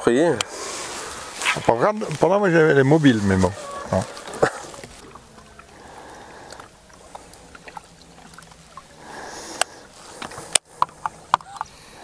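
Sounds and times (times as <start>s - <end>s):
water lapping against boat hull: 0.5s - 12.0s
faint clicks: 6.5s - 8.6s.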